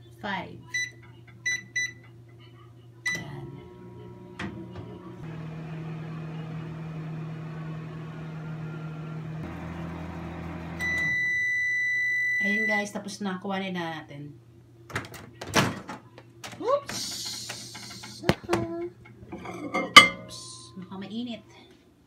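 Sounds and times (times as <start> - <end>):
microwave keypad beeps: 0.7 - 2.0, 3.1 - 3.4, 10.8 - 12.8
microwave humming: 0.7 - 12.9.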